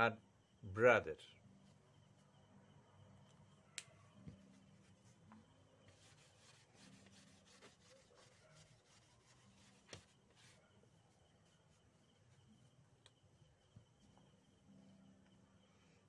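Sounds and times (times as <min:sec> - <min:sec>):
tissue rubbing whiteboard: 0:05.9 - 0:10.7.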